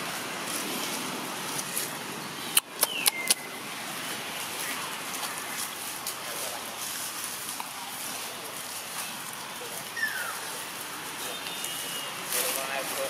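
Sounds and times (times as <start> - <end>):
outdoor background noise: 0.0 - 13.0
sharp clicks: 2.5 - 3.5.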